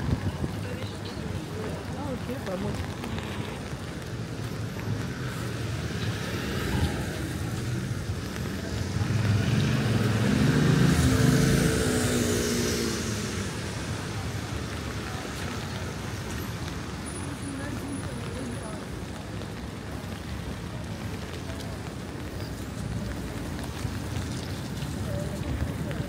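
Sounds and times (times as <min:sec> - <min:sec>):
street noise: 0:00.0 - 0:26.0
tyres hissing on wet road: 0:00.0 - 0:26.0
car engine passing: 0:05.1 - 0:14.0.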